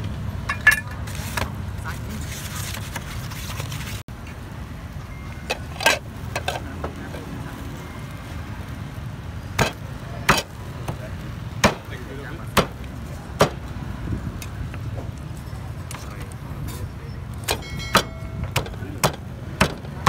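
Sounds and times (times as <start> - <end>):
low street rumble: 0.0 - 20.0
cleaver chopping on wooden board: 18.0 - 20.0.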